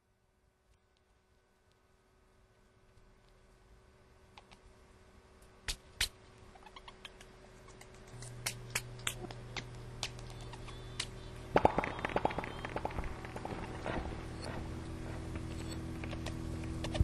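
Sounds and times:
low steady hum: 0.0 - 17.0
sharp clicks and crackles: 7.0 - 17.0.

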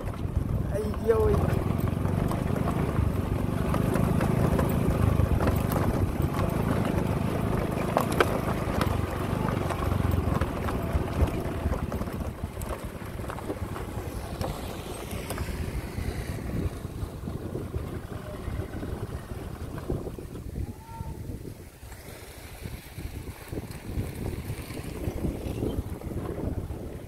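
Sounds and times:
small motorbike engine running: 0.0 - 20.4
wind buffeting the microphone: 0.0 - 27.0
sharp knocks from rough ground: 1.3 - 15.5.

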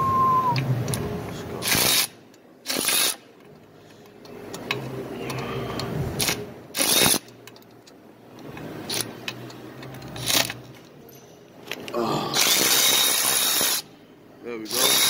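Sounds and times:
cordless ratchet running: 6.2 - 7.6, 12.4 - 13.9, 14.6 - 15.0.

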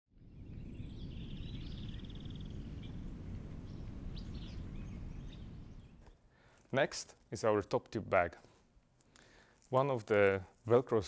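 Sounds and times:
steady low rumble: 0.2 - 6.0
small birds calling: 0.3 - 6.4.

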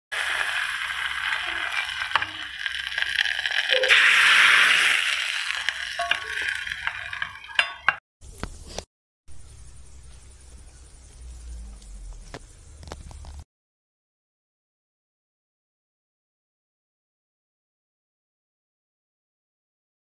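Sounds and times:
seeds sizzling in oil: 0.1 - 8.0.

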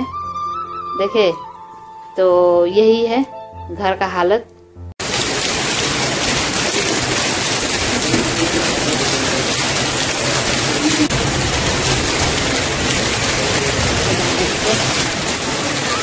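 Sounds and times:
heavy rain pouring: 5.0 - 16.0.

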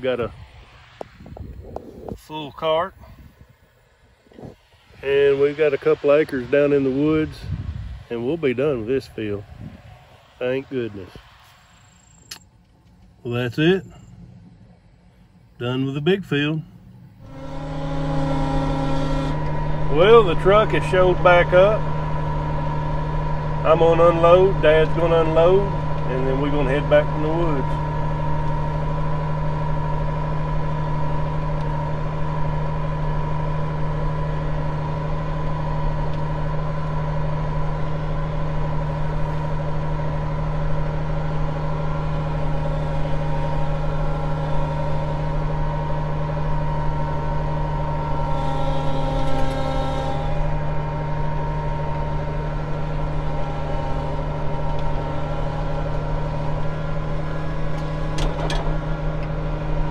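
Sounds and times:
tractor diesel engine running: 12.0 - 59.9
brief higher whine: 16.8 - 59.9.

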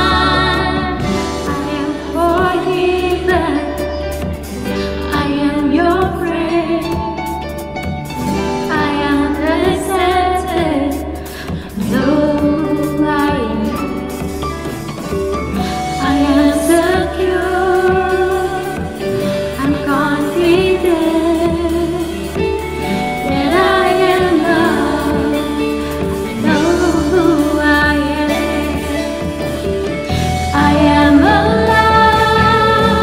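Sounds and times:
backing voices singing: 0.0 - 3.7, 23.1 - 29.5, 30.1 - 33.0
woman singing lead: 0.0 - 7.6, 8.2 - 14.8, 15.5 - 33.0
acoustic guitar: 0.0 - 33.0
bass guitar: 0.0 - 33.0
drums: 0.0 - 33.0.

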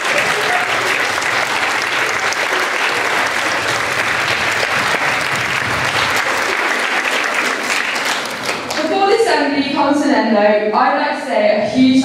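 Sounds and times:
audience clapping: 0.0 - 9.0.

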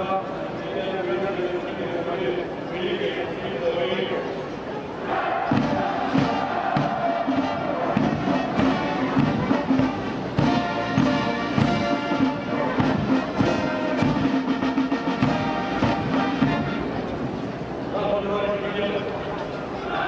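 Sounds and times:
military brass band playing march: 5.1 - 17.2.

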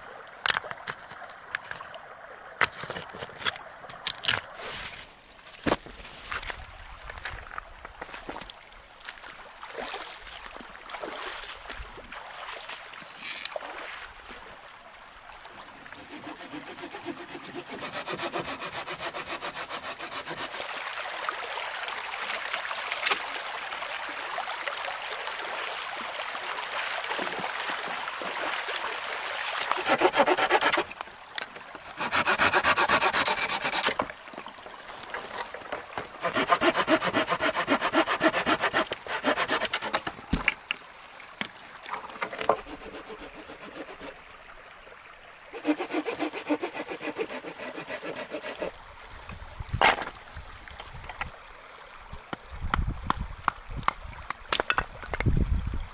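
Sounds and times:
branches dragged through water: 4.6 - 5.2
saw cutting dry branch: 15.9 - 20.6, 29.7 - 31.1, 31.8 - 34.0, 36.1 - 40.1, 42.4 - 44.2, 45.5 - 48.8.

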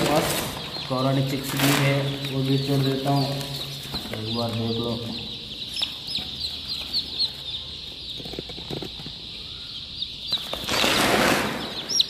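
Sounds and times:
loud rustling: 0.0 - 4.7, 10.4 - 12.0
chicks peeping: 0.0 - 12.0
hen clucking: 0.0 - 12.0.

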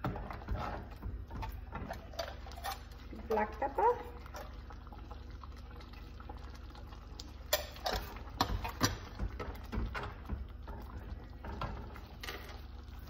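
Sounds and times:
metal ladle scraping a pot: 0.2 - 3.0.

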